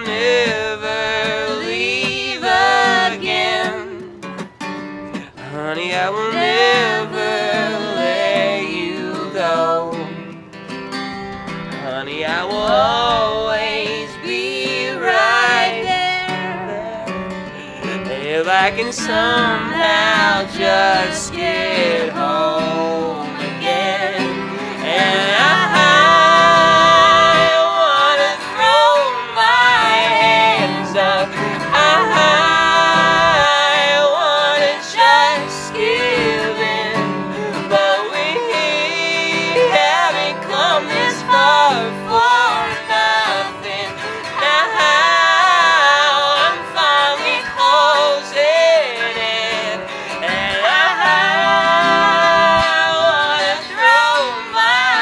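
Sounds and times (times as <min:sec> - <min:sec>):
man and woman singing duet: 0:00.0 - 0:04.4, 0:05.3 - 0:10.3, 0:11.8 - 0:55.0
acoustic guitar strumming: 0:00.0 - 0:55.0.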